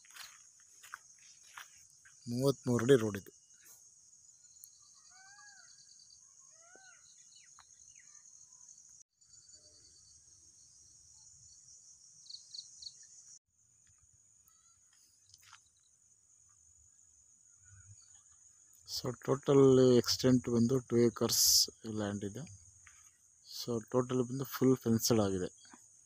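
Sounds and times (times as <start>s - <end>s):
pulsing insect trill: 0.0s - 26.0s
bird chirps: 1.2s - 13.4s.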